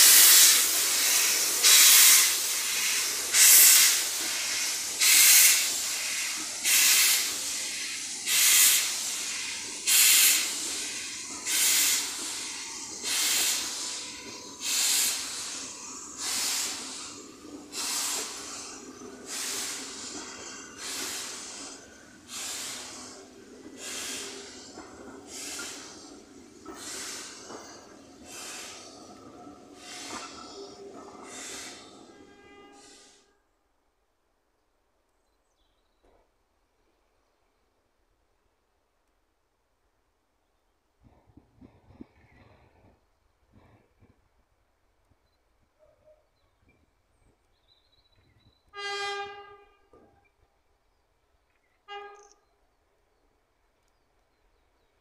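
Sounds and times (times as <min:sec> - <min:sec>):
steam locomotive exhaust chuffing: 0:00.0 - 0:33.4.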